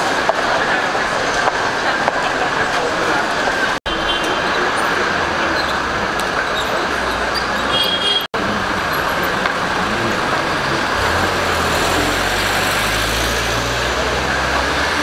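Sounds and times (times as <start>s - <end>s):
city street traffic: 0.0s - 15.0s
minibus engine driving past: 8.4s - 15.0s.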